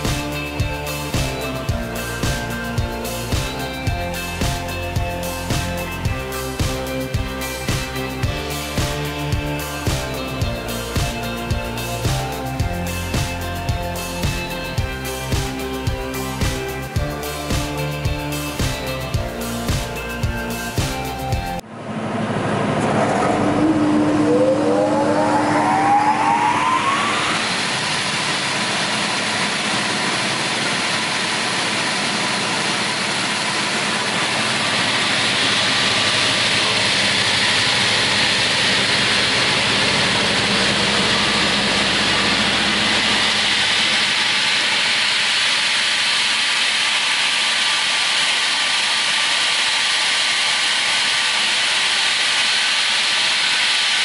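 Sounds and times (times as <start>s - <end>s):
saw machine whirring: 22.4s - 54.0s.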